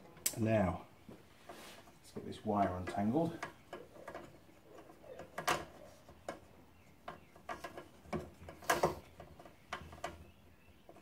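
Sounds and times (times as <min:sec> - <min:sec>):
clicks and knocks on metal casing: 0:02.6 - 0:11.0.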